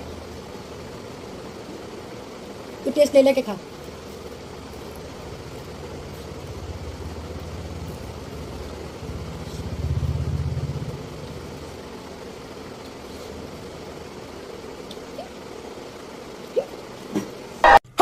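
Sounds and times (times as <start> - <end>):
low engine rumble: 3.6 - 17.4.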